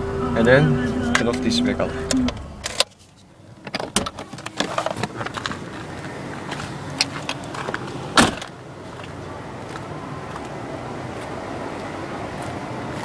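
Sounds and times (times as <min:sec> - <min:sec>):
car door thump: 0:08.1 - 0:08.5.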